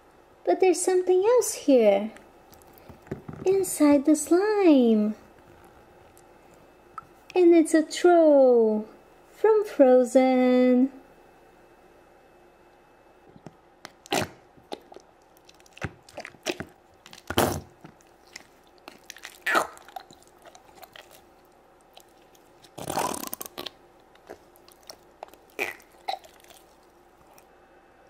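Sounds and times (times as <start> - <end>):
slime squelching: 2.4 - 3.6, 13.8 - 27.5.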